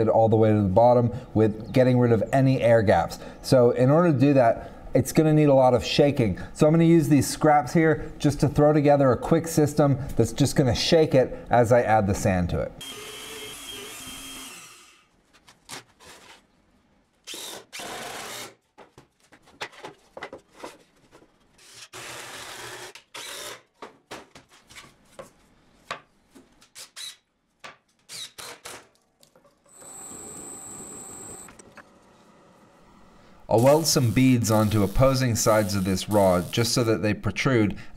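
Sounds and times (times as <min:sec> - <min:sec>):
power drill whining: 0:12.8 - 0:15.0, 0:29.7 - 0:31.6.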